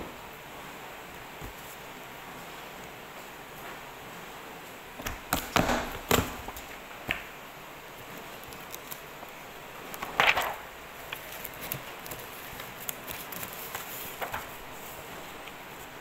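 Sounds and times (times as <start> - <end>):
paper rustling: 8.0 - 16.0.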